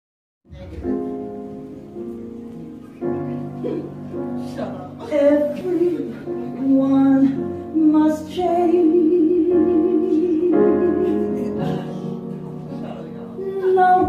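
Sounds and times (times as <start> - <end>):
woman singing: 5.0 - 11.8, 13.4 - 14.0.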